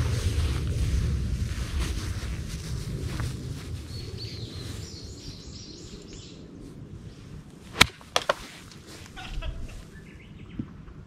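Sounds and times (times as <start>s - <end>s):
wind on microphone: 0.0s - 11.0s
faint birdsong: 3.7s - 7.9s, 8.8s - 11.0s
golf club striking ball: 7.7s - 8.4s.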